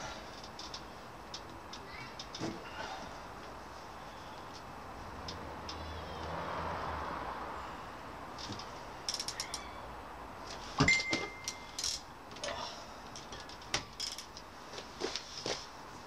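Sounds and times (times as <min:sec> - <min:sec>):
loud ringing clink: 0:10.8 - 0:12.0.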